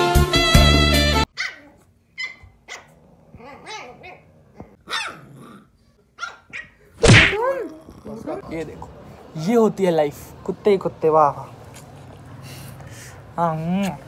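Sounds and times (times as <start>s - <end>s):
puppies yapping and barking: 1.3s - 5.2s.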